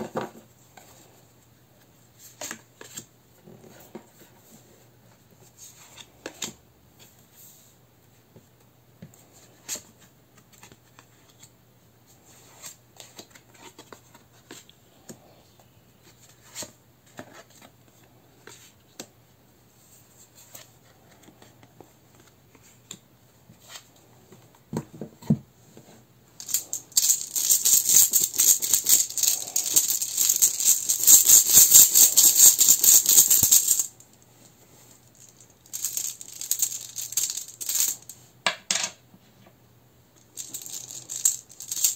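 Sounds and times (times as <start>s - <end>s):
runes rattling in a pouch: 26.4s - 34.0s, 35.1s - 38.1s, 40.4s - 41.9s.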